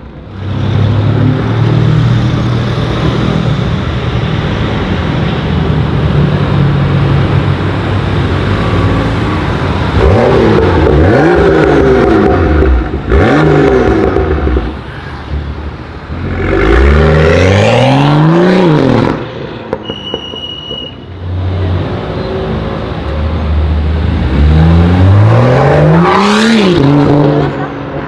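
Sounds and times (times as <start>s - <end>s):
car engine revving: 8.2s - 14.8s, 16.1s - 19.8s, 23.7s - 28.0s.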